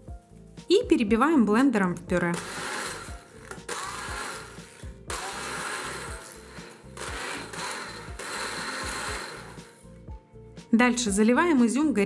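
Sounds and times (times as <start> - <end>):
immersion blender whirring: 2.3 - 9.8.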